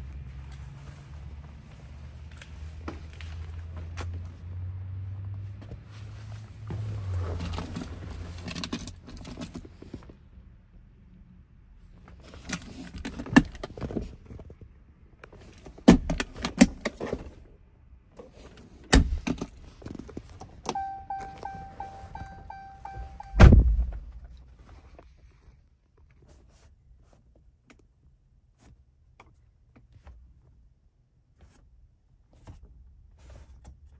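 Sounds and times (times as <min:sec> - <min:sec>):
pulsing electronic chime: 0:20.8 - 0:23.5
heavy thunk: 0:23.3 - 0:24.1.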